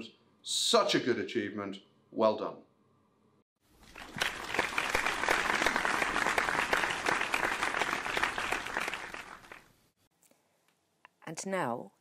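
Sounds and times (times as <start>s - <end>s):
crowd applause: 3.9s - 9.7s.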